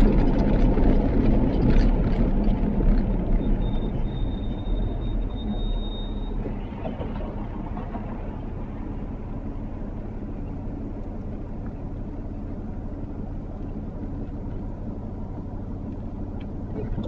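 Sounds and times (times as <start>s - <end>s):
car engine idling: 0.0s - 17.0s
car road and engine noise: 0.0s - 17.0s
brake squeal: 3.2s - 9.0s.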